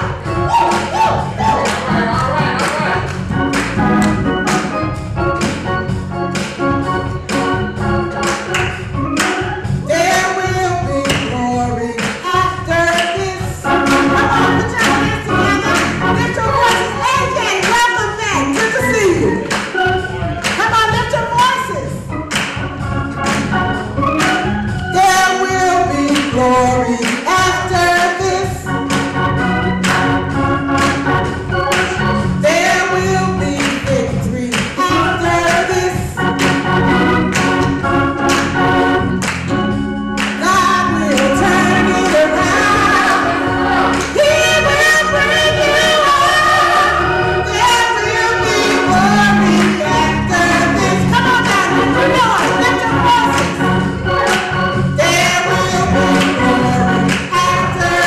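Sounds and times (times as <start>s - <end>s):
choir and congregation singing: 0.0s - 20.6s, 21.4s - 58.0s
organ: 0.0s - 58.0s
hand clapping: 0.6s - 1.9s, 2.6s - 4.8s, 8.1s - 9.5s, 11.0s - 11.4s, 12.0s - 12.3s, 12.9s - 13.2s, 19.4s - 20.7s, 22.3s - 23.5s, 24.2s - 24.4s, 26.1s - 26.4s, 27.0s - 27.3s, 29.8s - 30.1s, 31.7s - 32.0s, 33.6s - 34.8s, 36.4s - 36.7s, 37.3s - 38.6s, 39.2s - 39.5s, 40.2s - 40.5s, 54.2s - 54.6s, 57.1s - 57.4s
woman singing into microphone: 9.9s - 19.5s.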